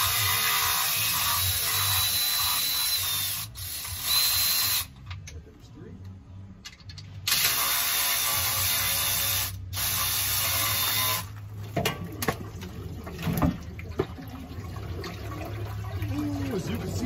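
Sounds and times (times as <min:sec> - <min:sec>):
oil gushing and rushing: 0:11.3 - 0:17.0
oil splashes and drips: 0:11.3 - 0:17.0.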